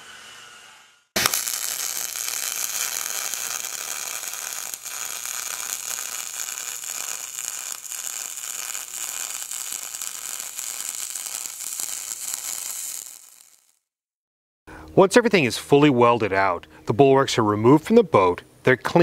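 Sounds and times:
welding arc crackling hiss: 0.0s - 13.8s.

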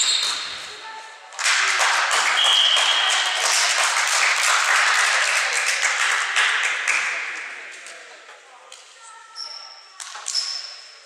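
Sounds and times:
crowd clapping and cheering: 1.4s - 7.8s
high whistle: 2.4s - 3.5s.

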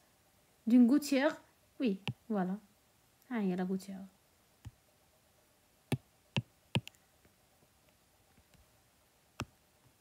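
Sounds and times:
stylus tapping on glass screen: 5.9s - 7.0s.

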